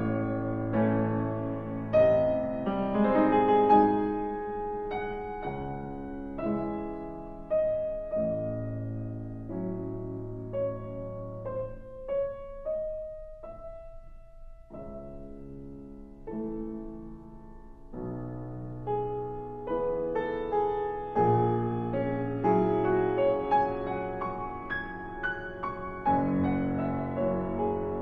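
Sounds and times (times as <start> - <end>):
solo piano classical piece: 0.0 - 28.0.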